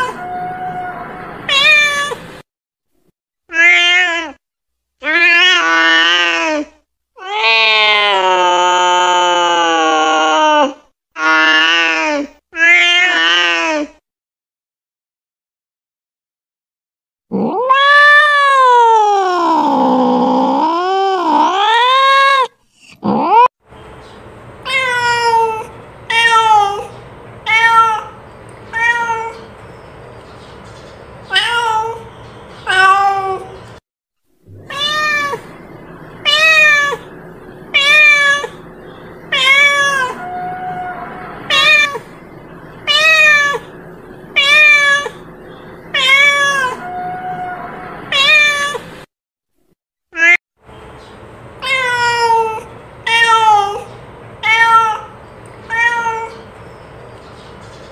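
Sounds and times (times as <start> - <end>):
cat meowing: 0.0 - 2.4, 3.5 - 4.4, 7.2 - 10.7, 17.4 - 23.5, 24.6 - 26.9, 27.5 - 29.5, 31.3 - 33.6, 34.5 - 38.6, 39.3 - 42.2, 42.8 - 45.3, 45.9 - 49.0, 50.2 - 50.4, 51.6 - 56.4.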